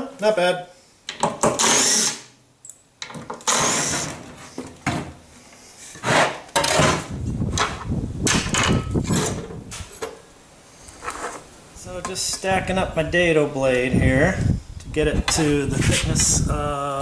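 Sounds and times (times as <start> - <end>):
cordless drill running: 1.6 - 2.2, 3.5 - 4.1
wood knocking and clattering: 4.6 - 5.2, 6.6 - 10.2.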